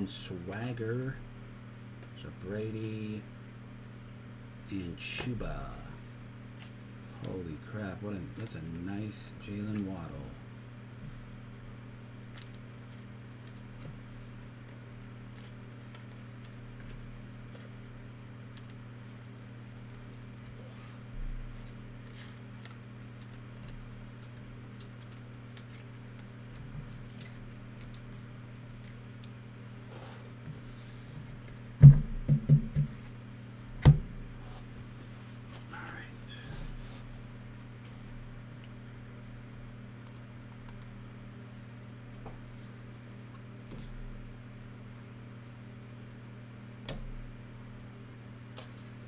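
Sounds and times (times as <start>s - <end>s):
low electrical hum: 0.0s - 49.0s
cards clicking and rustling: 14.6s - 20.6s, 21.6s - 29.4s
loud thumps on table: 31.8s - 33.0s.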